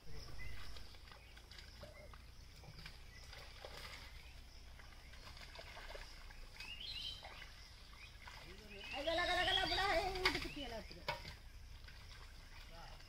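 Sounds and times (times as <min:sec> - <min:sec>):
squelches in mud: 0:00.0 - 0:13.0.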